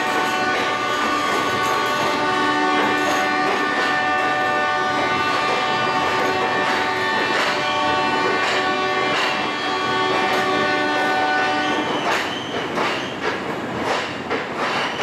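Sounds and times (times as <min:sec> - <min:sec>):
locomotive horn blast: 0:00.0 - 0:12.0
train wheels rumbling and clicking: 0:00.0 - 0:15.0.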